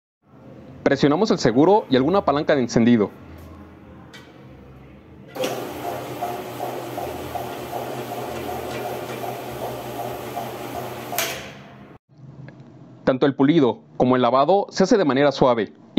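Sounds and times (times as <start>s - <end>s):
floor polisher motor running: 5.4s - 11.7s.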